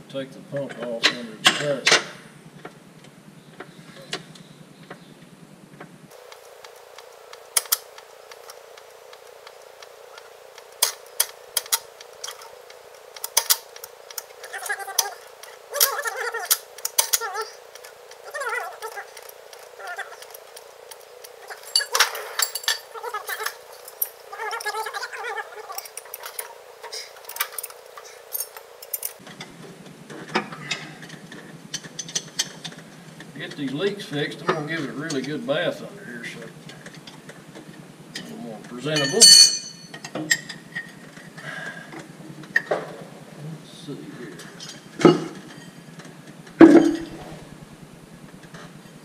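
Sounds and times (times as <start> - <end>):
hand tools clinking on steel: 21.5 - 25.0, 38.9 - 40.9.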